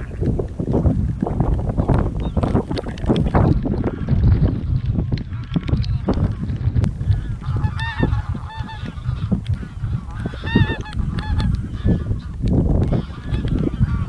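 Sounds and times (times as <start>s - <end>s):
steady low rumble: 0.0s - 14.0s
geese honking: 5.3s - 14.0s.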